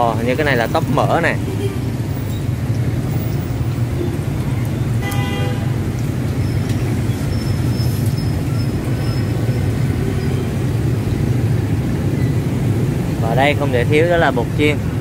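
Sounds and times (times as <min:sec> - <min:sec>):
street traffic rumble: 0:00.0 - 0:15.0
car horn toot: 0:05.0 - 0:05.8.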